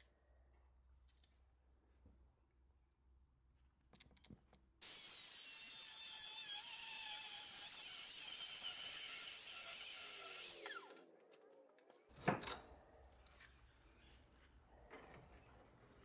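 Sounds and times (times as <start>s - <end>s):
angle grinder cutting steel: 4.8s - 11.0s.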